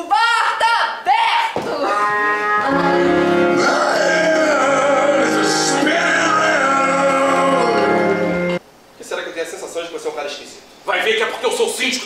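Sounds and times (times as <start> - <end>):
song with singing over sustained chords: 2.6 - 8.6.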